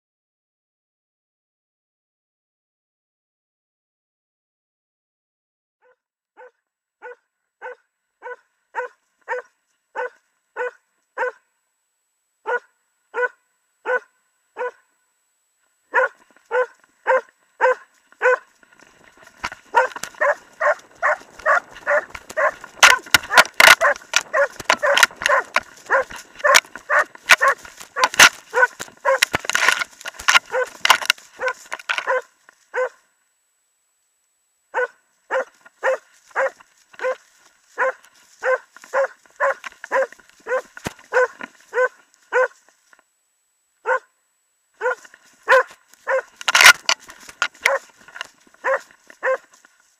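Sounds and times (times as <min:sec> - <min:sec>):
dog barking: 0:05.8 - 0:11.5, 0:12.4 - 0:14.9, 0:15.9 - 0:18.5, 0:19.7 - 0:33.0, 0:34.7 - 0:42.6, 0:43.8 - 0:44.1, 0:44.8 - 0:46.8, 0:47.6 - 0:47.9, 0:48.6 - 0:49.6.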